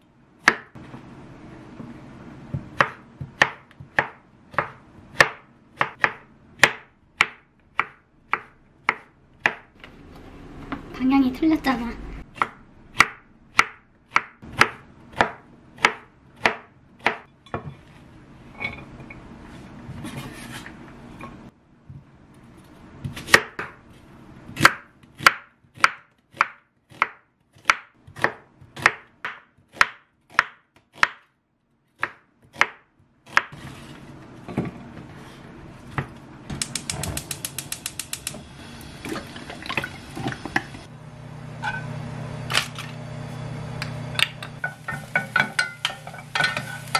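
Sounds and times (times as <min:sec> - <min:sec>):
knife chopping on wooden board: 0:00.4 - 0:00.8, 0:02.5 - 0:09.7, 0:24.6 - 0:31.2.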